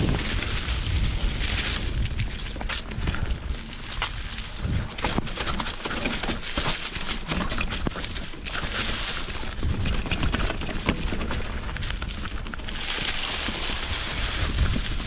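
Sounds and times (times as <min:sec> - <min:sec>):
low rumble: 0:00.0 - 0:05.4
bike rattling: 0:00.0 - 0:15.0
tyres crunching through leaves: 0:00.0 - 0:15.0.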